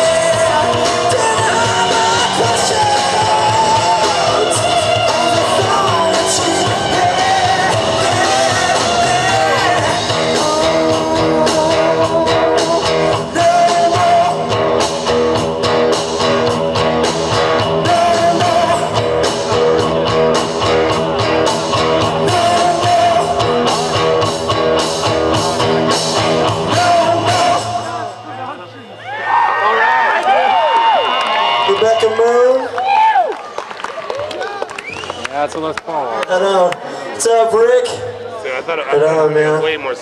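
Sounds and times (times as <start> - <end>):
person singing: 0.0 - 14.9, 17.3 - 19.8, 22.0 - 24.0, 26.4 - 28.2
drums steady beat: 0.0 - 28.1
live rock band playing: 0.0 - 28.4.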